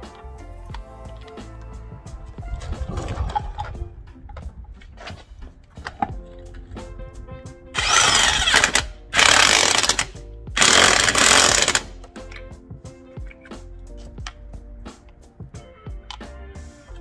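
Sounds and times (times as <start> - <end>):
background music: 0.0 - 17.0
impact wrench bursts: 7.8 - 12.0.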